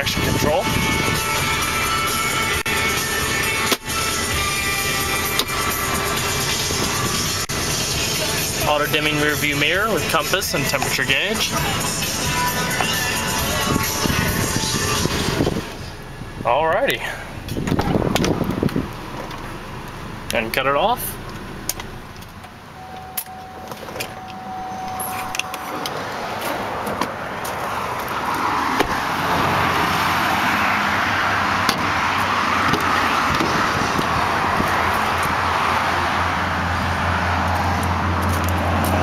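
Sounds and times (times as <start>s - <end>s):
highway traffic rushing: 0.0s - 39.0s
faint steady tone: 22.8s - 26.0s
car door handle and latch clicks: 28.8s - 29.0s.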